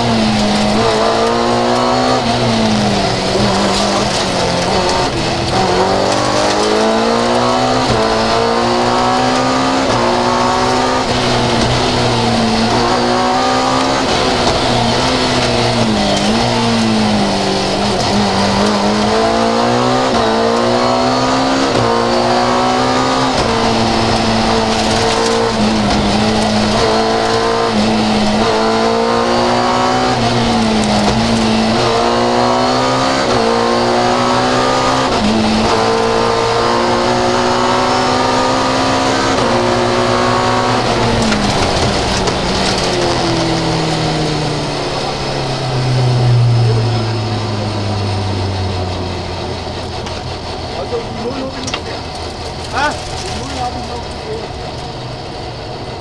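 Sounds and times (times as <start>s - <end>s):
rally car engine revving: 0.0s - 56.0s
road and tyre noise: 0.0s - 56.0s.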